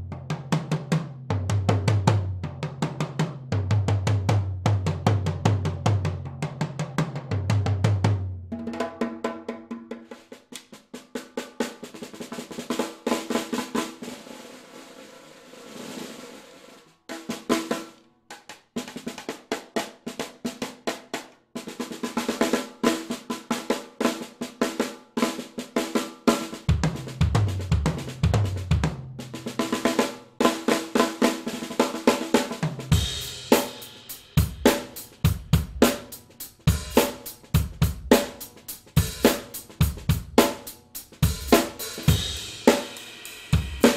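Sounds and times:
snare and toms played with sticks: 0.0 - 43.9
bass drum: 26.7 - 29.6, 32.6 - 42.9
cymbal crashes: 41.8 - 43.9.

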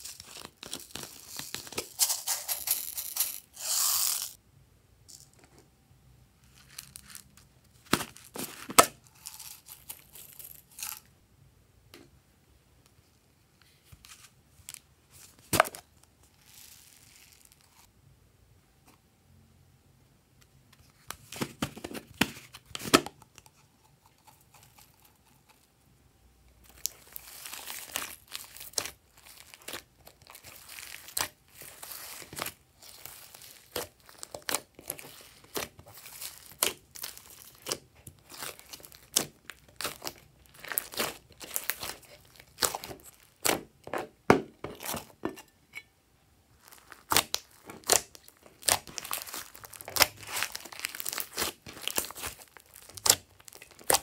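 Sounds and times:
slime crackling and popping: 26.6 - 43.6, 46.6 - 54.0.

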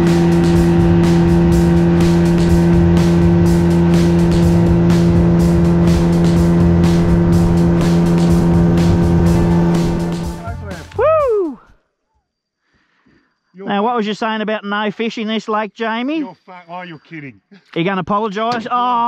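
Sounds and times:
boat hull slapping water: 0.0 - 10.4
outboard motor running: 0.0 - 11.0.

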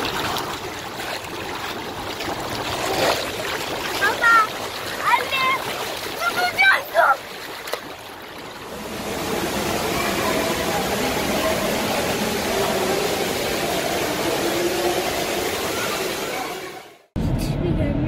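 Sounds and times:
water rushing in pool: 0.0 - 17.1
faint voices: 9.0 - 17.0.

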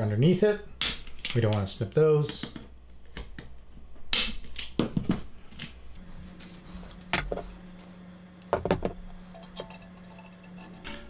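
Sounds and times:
small parts clattering: 6.4 - 11.0.

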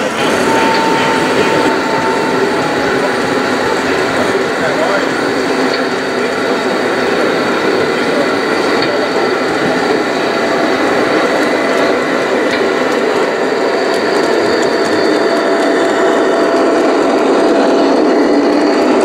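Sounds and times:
electric motor hum: 0.0 - 7.5
model train wheels rumbling: 0.0 - 19.0.

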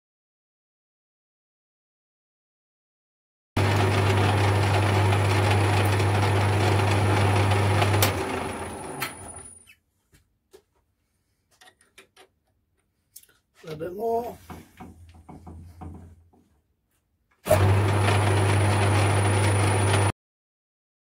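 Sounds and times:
lathe chuck spinning down: 3.6 - 9.6, 17.4 - 20.1
metal lathe running: 3.6 - 9.6, 17.5 - 20.1.

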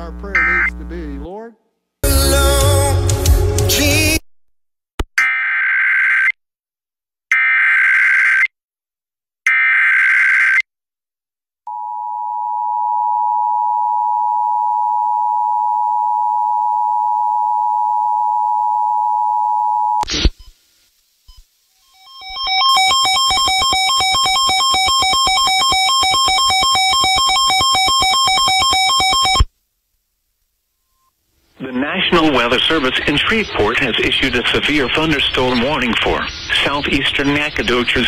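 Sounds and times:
buzzy digital header bursts: 0.0 - 1.2
two-tone alert signal: 21.9 - 29.5.

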